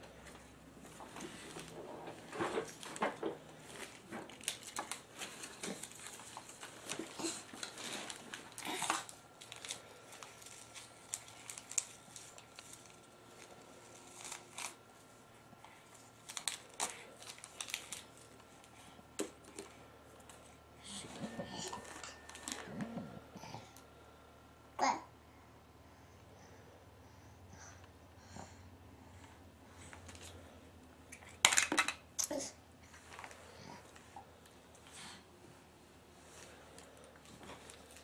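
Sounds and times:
wrapping paper crinkling and tearing: 1.3s - 14.9s, 15.6s - 20.5s, 21.2s - 22.8s, 36.3s - 38.0s.

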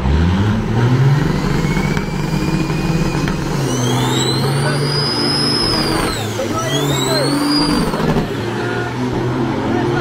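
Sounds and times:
diesel truck engines revving: 0.0s - 10.0s
turbocharger whistle: 1.4s - 9.1s.

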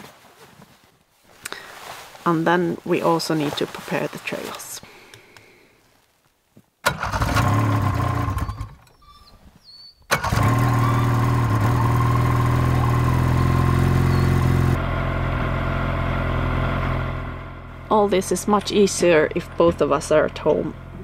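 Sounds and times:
snowmobile engine idling: 10.2s - 21.0s.

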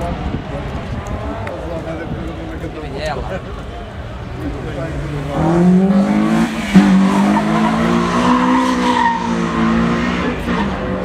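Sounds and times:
car engine revving: 4.6s - 11.0s.

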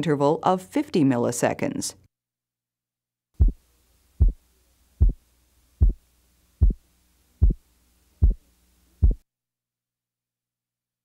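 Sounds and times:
heartbeat: 3.4s - 3.6s, 4.2s - 4.4s, 5.0s - 5.2s, 5.8s - 6.0s, 6.6s - 6.8s, 7.4s - 7.6s, 8.2s - 8.4s, 9.0s - 9.2s.

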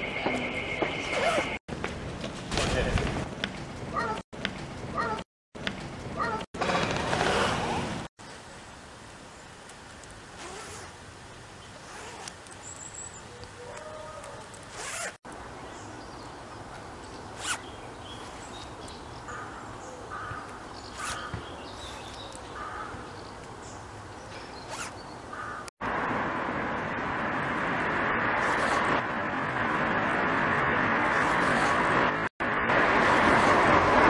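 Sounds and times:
zip rasping: 1.1s - 1.6s, 6.6s - 8.1s, 10.4s - 11.0s, 11.8s - 12.5s, 14.6s - 15.2s, 17.4s - 17.7s, 20.9s - 22.2s, 24.5s - 25.0s, 28.4s - 29.0s, 31.0s - 32.1s.

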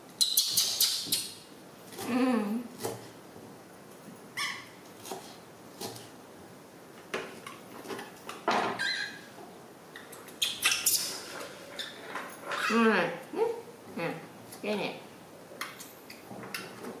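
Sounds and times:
baby monkey squeaking: 4.4s - 4.7s.

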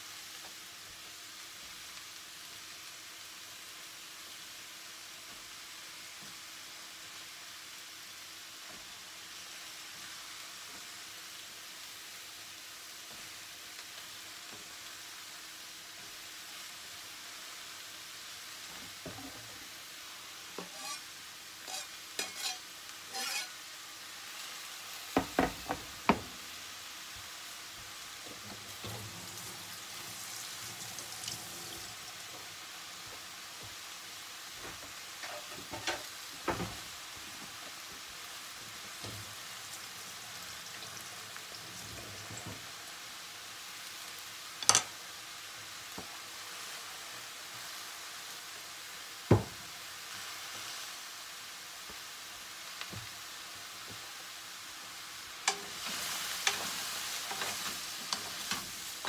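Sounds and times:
mushrooms sizzling in a frying pan: 0.0s - 59.0s
cutting board knocking on pan: 25.2s - 26.4s, 49.3s - 49.6s.

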